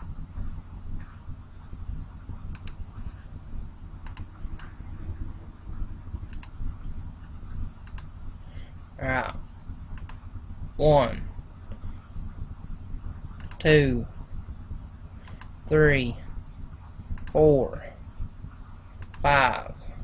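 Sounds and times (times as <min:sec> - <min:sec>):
steady low hum: 0:00.0 - 0:20.0
computer mouse clicks: 0:02.4 - 0:02.8, 0:04.0 - 0:04.8, 0:06.3 - 0:06.6, 0:07.8 - 0:08.1, 0:09.9 - 0:10.2, 0:13.3 - 0:13.7, 0:15.2 - 0:15.6, 0:17.1 - 0:17.4, 0:19.0 - 0:19.3.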